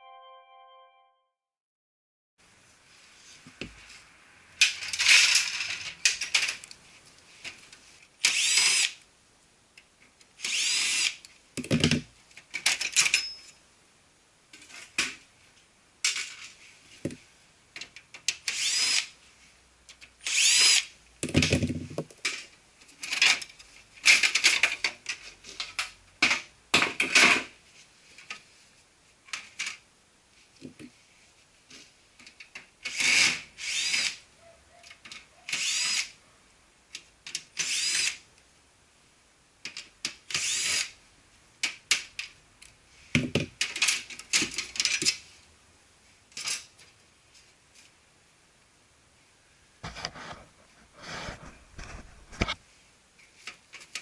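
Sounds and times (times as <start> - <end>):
cordless drill bursts: 8.2 - 9.0, 10.4 - 11.2, 18.5 - 19.1, 20.2 - 20.9, 32.9 - 34.2, 35.5 - 36.1, 37.6 - 38.2, 40.4 - 40.9.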